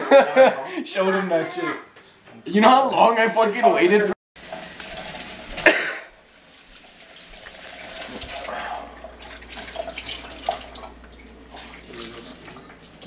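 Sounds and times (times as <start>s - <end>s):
tap water running into sink: 4.4s - 13.0s.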